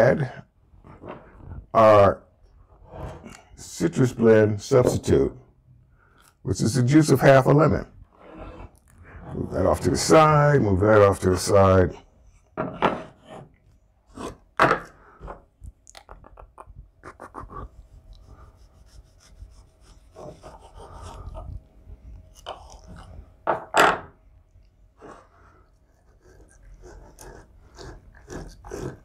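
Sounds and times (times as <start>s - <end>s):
knife knocks and scrapes on board: 12.6s - 13.5s.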